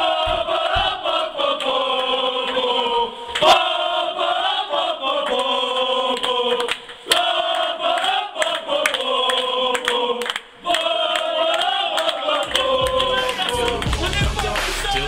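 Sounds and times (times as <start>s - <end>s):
men chanting in unison: 0.0s - 15.0s
hand claps: 0.7s - 2.7s, 5.2s - 15.0s.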